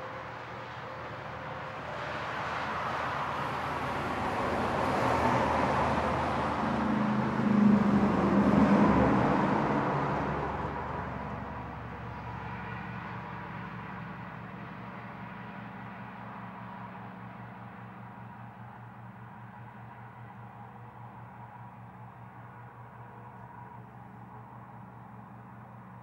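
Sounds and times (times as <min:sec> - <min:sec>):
trucks passing: 0:00.0 - 0:17.8.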